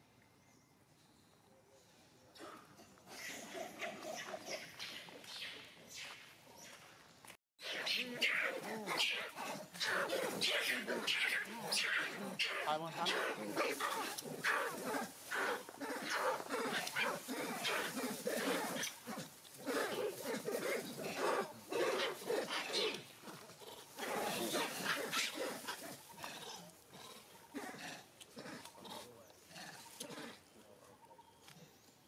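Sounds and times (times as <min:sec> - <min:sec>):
monkeys squealing and screeching: 0:03.1 - 0:05.6, 0:07.6 - 0:26.3.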